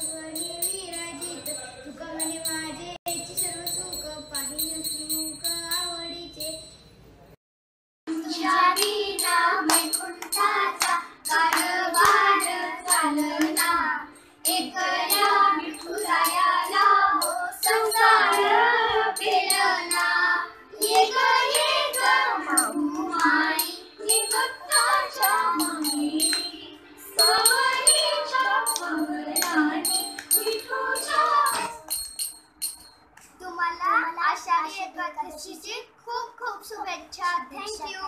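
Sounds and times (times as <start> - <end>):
metallic jingle: 0.0 - 7.1, 23.6 - 26.6, 27.2 - 33.1
children singing: 8.1 - 31.9
hand claps: 8.8 - 13.7, 22.9 - 23.4, 24.8 - 26.5, 27.3 - 33.4.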